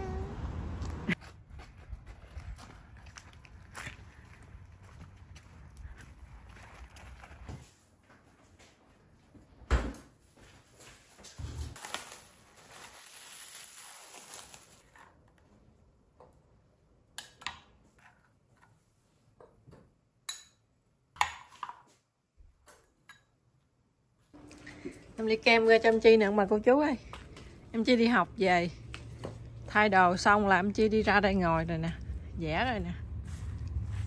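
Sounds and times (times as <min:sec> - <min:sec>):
plastic bag crinkling: 0:11.8 - 0:14.9.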